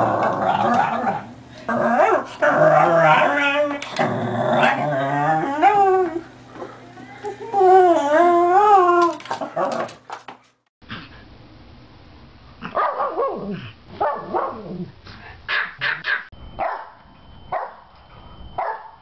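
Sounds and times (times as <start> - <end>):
dog howling: 0.0 - 6.3, 7.2 - 10.0.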